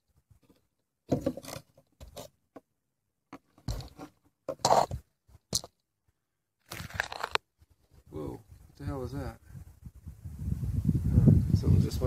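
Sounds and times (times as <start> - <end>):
scrapes on wooden boards: 3.6 - 5.0.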